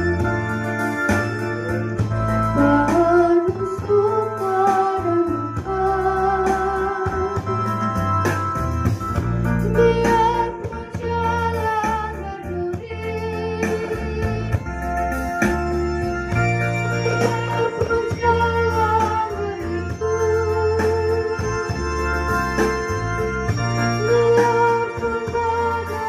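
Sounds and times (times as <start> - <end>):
electronic keyboard chords: 0.0 - 26.0
woman singing through loudspeakers: 2.6 - 7.7, 9.6 - 14.7, 17.0 - 21.7, 24.0 - 26.0.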